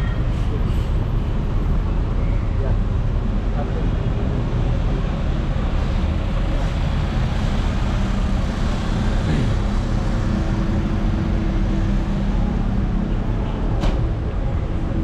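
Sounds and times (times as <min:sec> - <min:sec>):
traffic engines idling: 0:00.0 - 0:15.0.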